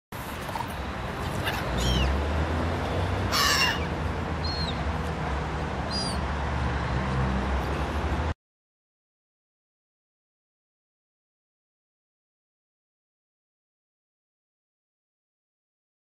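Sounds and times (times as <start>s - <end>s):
gulls calling harshly: 0.6s - 2.3s, 2.9s - 4.9s, 5.8s - 6.3s.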